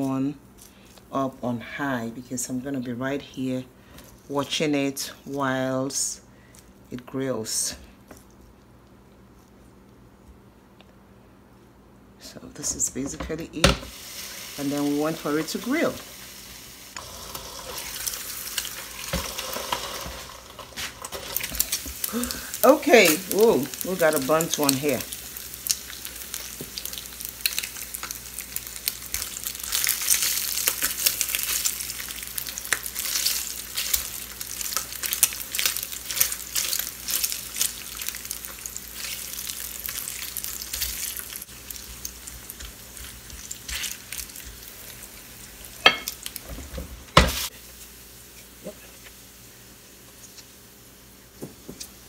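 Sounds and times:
bacon sizzling and popping: 13.6s - 52.0s.

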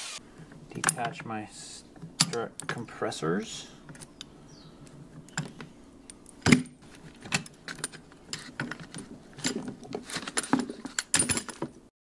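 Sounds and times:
metal clinks and knocks: 5.3s - 11.8s.

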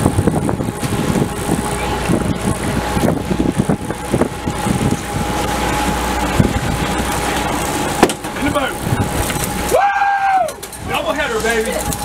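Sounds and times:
wind buffeting microphone: 0.0s - 9.7s
boat engines running: 0.0s - 12.0s
steady whine: 0.0s - 12.0s
wake water rushing: 0.0s - 12.0s.

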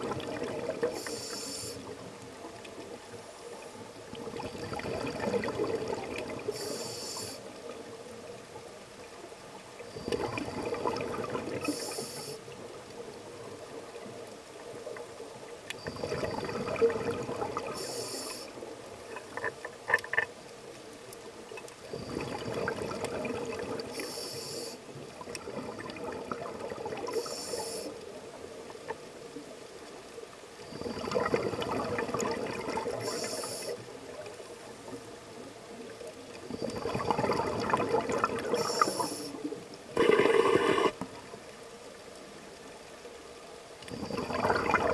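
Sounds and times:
exhaled air bubbling: 0.0s - 1.8s, 4.1s - 7.3s, 9.9s - 12.3s, 15.7s - 18.5s, 21.8s - 27.8s, 30.7s - 34.3s, 35.8s - 41.3s, 43.8s - 44.9s
regulator inhale hiss: 0.8s - 2.0s, 6.5s - 7.6s, 11.6s - 12.6s, 17.7s - 19.2s, 23.8s - 24.9s, 27.1s - 28.1s, 33.0s - 35.2s, 38.5s - 41.1s.

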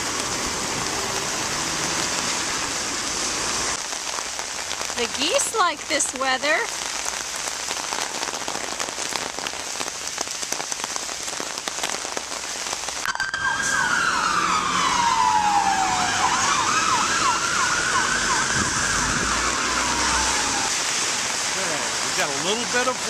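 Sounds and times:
emergency vehicle siren: 0.0s - 2.8s, 13.0s - 20.8s
heavy rain pattering: 0.0s - 23.0s.

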